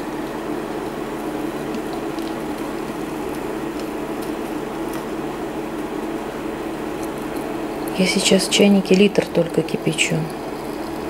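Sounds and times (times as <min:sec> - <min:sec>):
water pouring from kettle: 0:00.3 - 0:05.2, 0:09.2 - 0:11.0.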